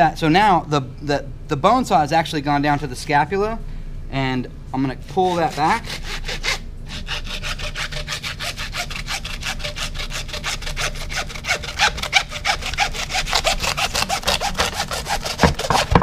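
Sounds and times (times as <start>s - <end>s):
hand saw cutting through bone: 5.1s - 16.0s.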